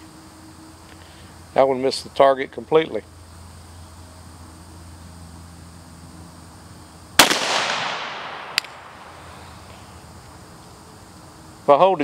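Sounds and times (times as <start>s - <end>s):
pistol shot echoing: 7.2s - 9.2s.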